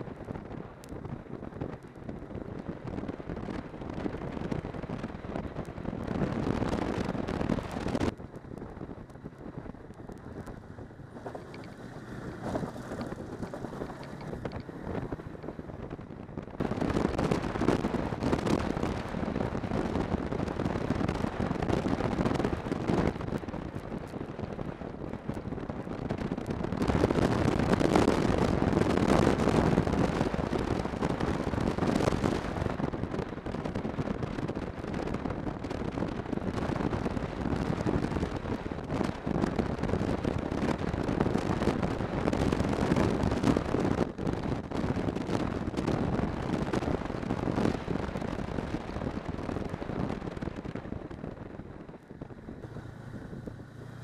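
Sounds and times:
snowmobile running: 0:00.0 - 0:54.0
wind buffeting microphone: 0:00.0 - 0:54.0.

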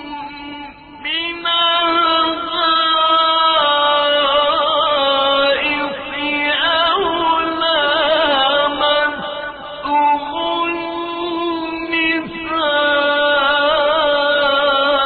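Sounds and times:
man chanting melodically: 0:00.0 - 0:15.0.

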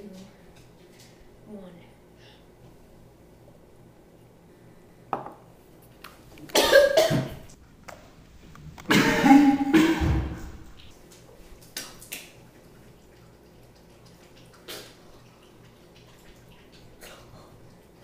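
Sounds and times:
person gagging and coughing: 0:06.6 - 0:07.3, 0:08.9 - 0:10.1.

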